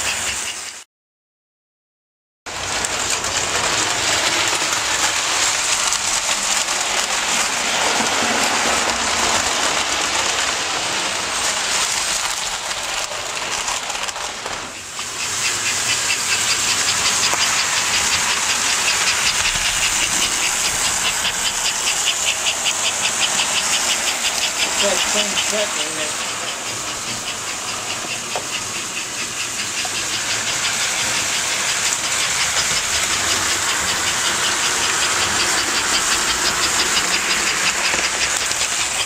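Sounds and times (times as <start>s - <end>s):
model train wheels rumbling on track: 0.0s - 0.8s, 2.5s - 39.0s
fast even ticking: 15.0s - 39.0s.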